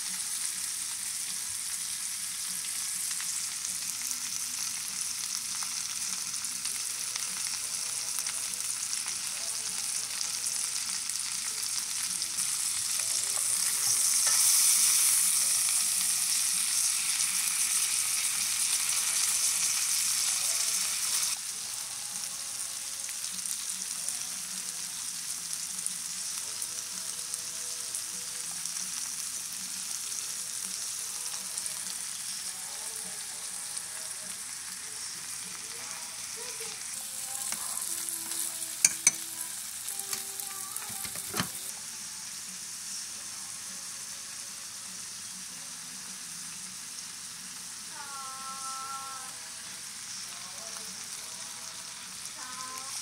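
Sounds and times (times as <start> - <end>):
food sizzling in hot oil: 0.0 - 53.0.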